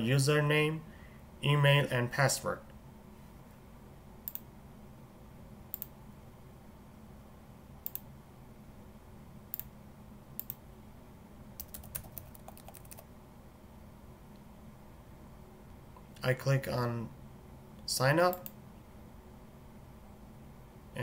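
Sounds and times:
mouse clicks: 4.2 - 4.5, 5.7 - 6.0, 7.8 - 8.1, 10.4 - 10.6, 18.3 - 18.6
keyboard typing: 11.6 - 13.1.

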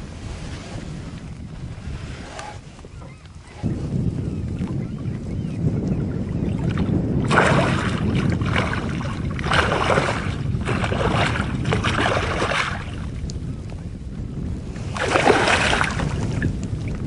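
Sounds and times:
low wind rumble on microphone: 0.0 - 17.0
fish thrashing and splashing water: 7.2 - 13.0, 14.9 - 16.4.

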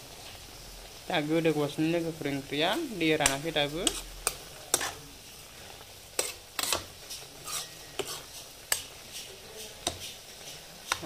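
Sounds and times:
faint frying sizzle: 0.0 - 11.0
utensil scraping against a pan: 3.2 - 11.0.

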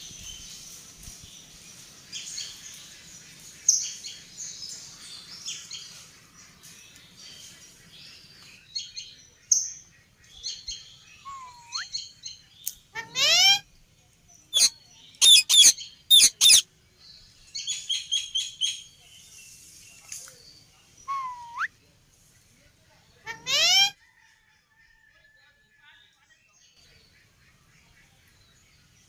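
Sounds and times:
parakeets screeching: 13.0 - 13.6, 14.6 - 16.6
parakeets chirping: 14.6 - 16.6
whistled note dipping and rising: 21.1 - 21.7.

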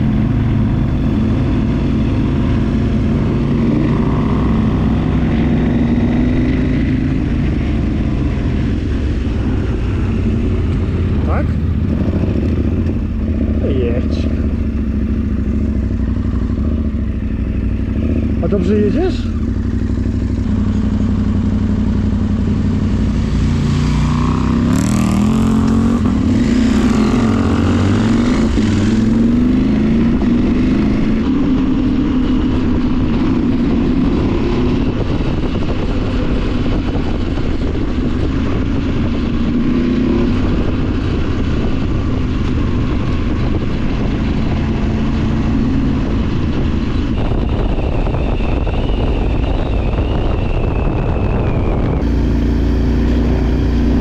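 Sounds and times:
motorcycle engine revving: 0.0 - 54.0
wind and road noise: 0.0 - 54.0.

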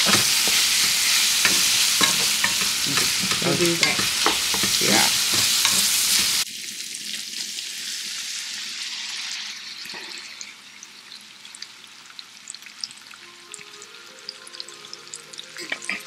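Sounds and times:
wooden spoon scraping a pan: 0.0 - 6.4
meat sizzling in a frying pan: 0.0 - 16.0.

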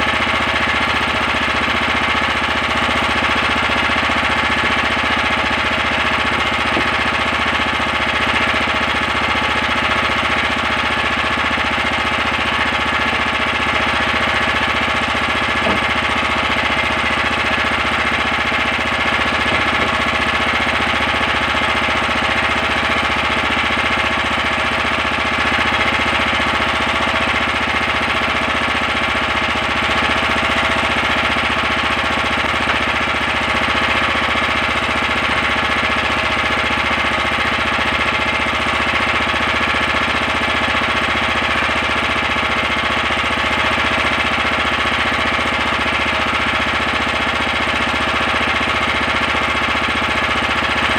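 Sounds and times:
boat engine chugging: 0.2 - 37.8.

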